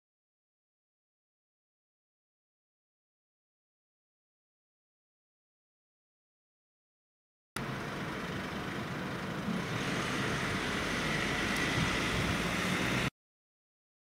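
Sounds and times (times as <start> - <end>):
road traffic rumble: 7.6 - 13.1.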